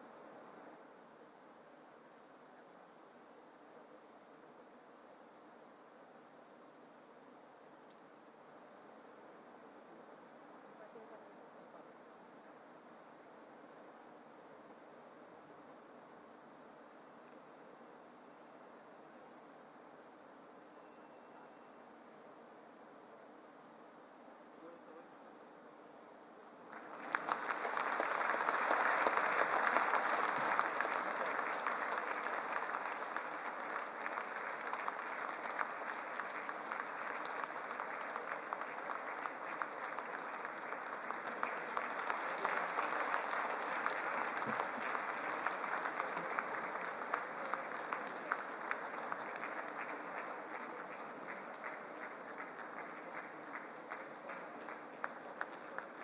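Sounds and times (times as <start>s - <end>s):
audience applause: 26.7s - 56.0s.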